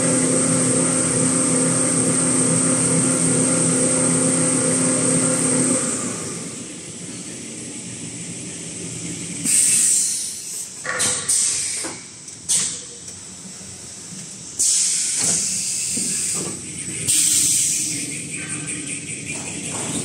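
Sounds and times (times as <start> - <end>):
bursts of hissing air: 9.5 - 12.8, 14.6 - 18.2.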